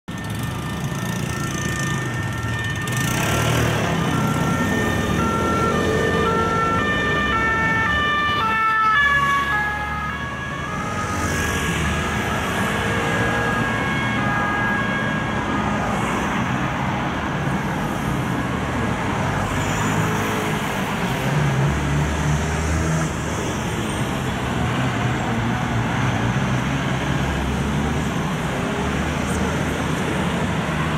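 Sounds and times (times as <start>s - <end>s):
city traffic: 0.0s - 30.9s
two-tone police siren: 0.1s - 20.0s.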